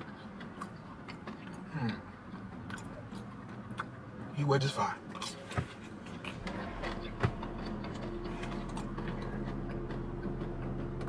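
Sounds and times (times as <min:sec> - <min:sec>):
chewing: 0:00.0 - 0:04.0
steady low hum: 0:05.8 - 0:11.0.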